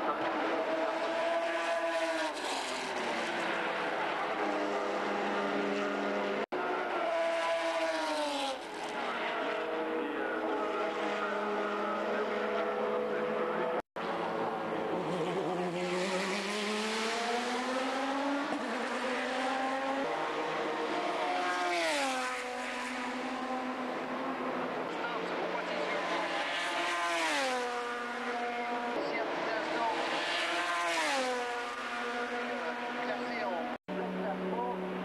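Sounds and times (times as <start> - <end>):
race car engine revving: 0.0 - 35.0.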